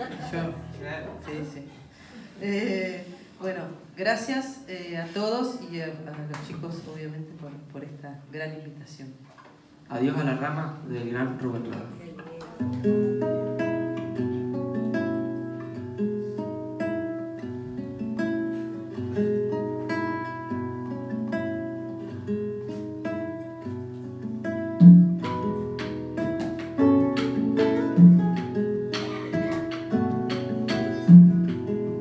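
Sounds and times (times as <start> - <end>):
acoustic guitars playing: 0.0 - 3.4, 11.4 - 32.0.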